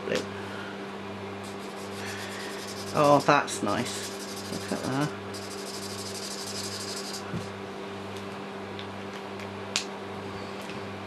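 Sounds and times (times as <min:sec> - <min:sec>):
electric fan humming: 0:00.0 - 0:10.2
marker scribbling on paper: 0:01.5 - 0:07.3.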